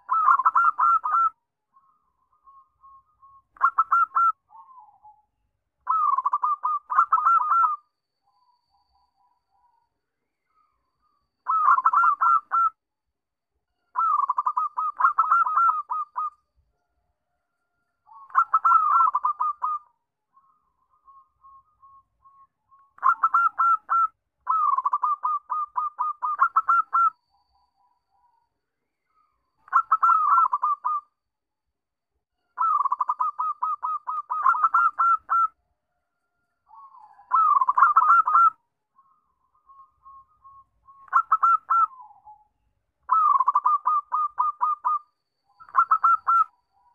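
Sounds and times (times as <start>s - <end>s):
dove cooing: 0.0s - 1.4s, 3.6s - 5.2s, 5.9s - 7.8s, 14.0s - 16.3s, 18.1s - 19.9s, 23.0s - 27.1s, 29.7s - 31.0s, 32.6s - 35.5s, 36.7s - 38.6s, 41.1s - 42.4s, 43.1s - 45.0s, 45.6s - 46.5s.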